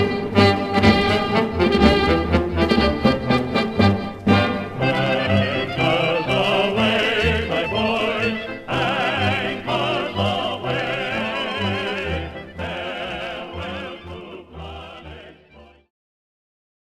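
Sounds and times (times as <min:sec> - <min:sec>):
operatic singing: 0:00.0 - 0:15.9
orchestral music: 0:00.0 - 0:15.9.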